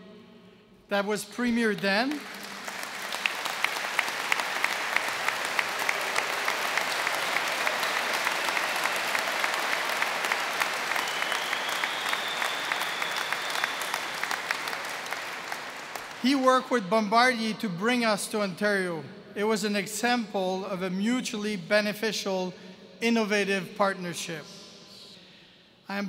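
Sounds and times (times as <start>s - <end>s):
crowd applauding: 2.0s - 16.4s.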